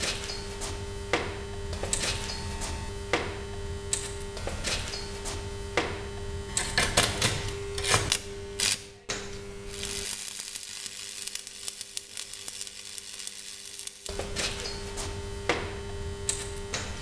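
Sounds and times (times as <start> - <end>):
steady hum: 0.0 - 17.0
welding arc sizzle: 0.0 - 17.0
welder arc crackles and pops: 6.6 - 16.9.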